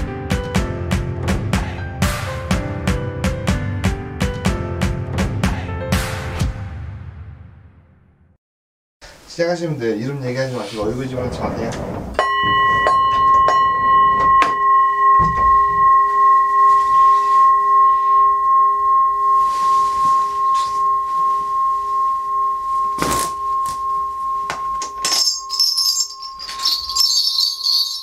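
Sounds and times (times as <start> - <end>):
rustling burst: 10.5 - 14.2
hand bells jingling: 12.2 - 28.0
singing bowl ringing: 12.2 - 28.0.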